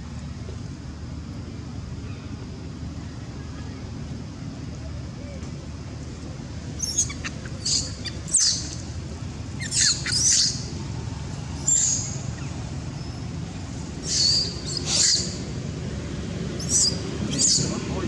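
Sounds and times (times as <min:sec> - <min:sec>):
low background rumble: 0:00.0 - 0:18.0
monkey shrill screams: 0:06.8 - 0:08.8, 0:09.6 - 0:10.7, 0:14.0 - 0:15.4, 0:16.6 - 0:17.7.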